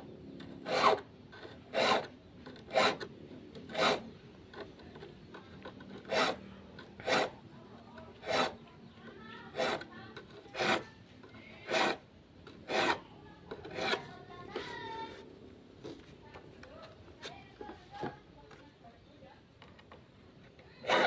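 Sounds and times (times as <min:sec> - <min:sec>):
file rasping on saw teeth: 0:00.6 - 0:03.1, 0:03.7 - 0:04.1, 0:06.0 - 0:07.4, 0:08.1 - 0:08.6, 0:09.4 - 0:11.0, 0:11.6 - 0:12.0, 0:12.6 - 0:13.0, 0:13.6 - 0:14.1.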